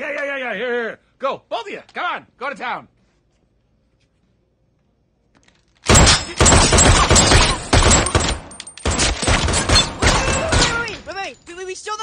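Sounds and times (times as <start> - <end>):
rapid gunfire: 5.9 - 10.9.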